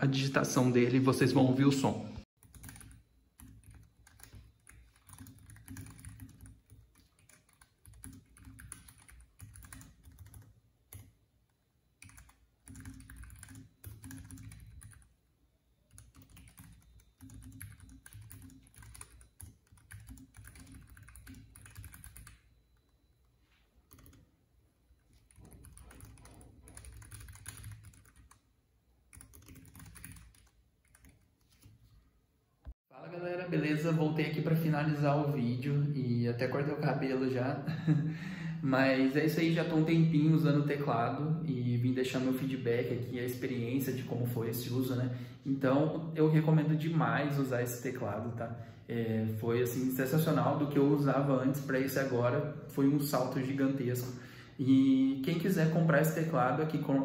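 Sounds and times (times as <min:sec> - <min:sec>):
mechanical keyboard typing: 0:02.4 - 0:11.1, 0:12.0 - 0:15.1, 0:15.9 - 0:22.5, 0:23.9 - 0:24.3, 0:25.0 - 0:28.4, 0:29.1 - 0:31.8.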